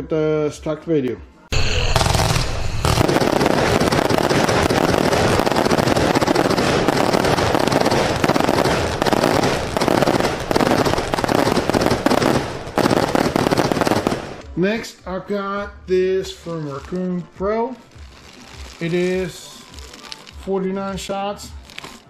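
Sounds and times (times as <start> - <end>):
rapid firework bangs: 1.6 - 14.4.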